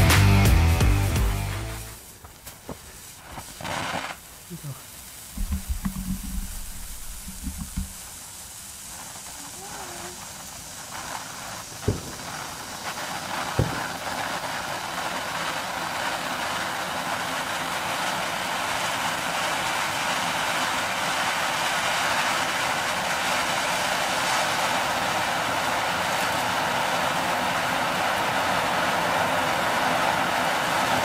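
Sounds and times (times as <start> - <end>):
firework fountain hissing: 0.0 - 31.0
sharp pops: 2.1 - 15.6.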